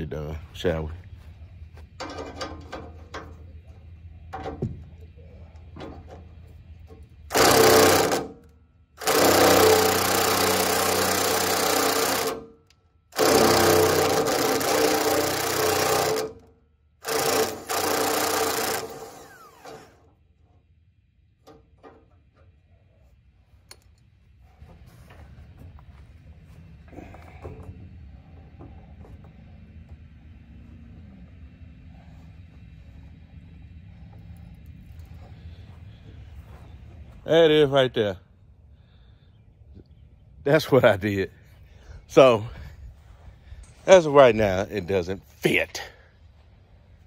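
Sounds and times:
cordless drill bursts: 7.3s - 8.4s, 9.0s - 12.5s, 13.2s - 16.4s, 17.0s - 20.1s.

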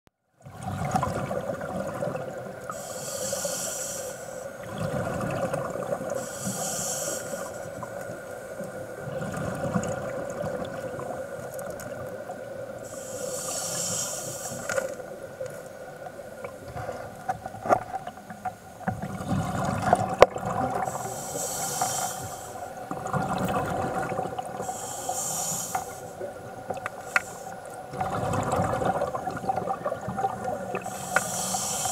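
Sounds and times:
exhaled bubbles rumbling: 0.4s - 2.6s, 4.6s - 6.2s, 8.9s - 12.6s, 18.8s - 21.1s, 22.8s - 24.7s, 27.8s - 31.1s
regulator hissing inhalations: 2.7s - 4.6s, 6.2s - 8.4s, 12.8s - 15.0s, 20.8s - 22.8s, 24.6s - 26.3s, 26.9s - 27.8s, 30.8s - 31.9s.

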